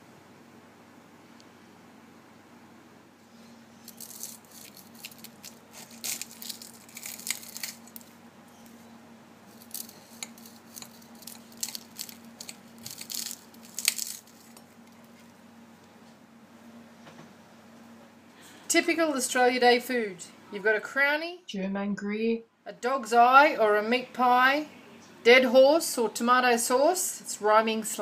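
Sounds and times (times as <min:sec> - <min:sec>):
faint steady hum: 0:00.0 - 0:28.0
pastry crackling and crunching: 0:03.8 - 0:08.8, 0:09.4 - 0:15.4.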